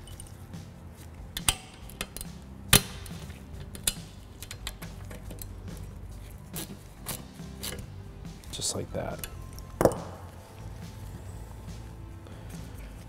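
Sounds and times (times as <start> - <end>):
hand ratchet clicking: 1.3 - 5.9, 6.6 - 7.9.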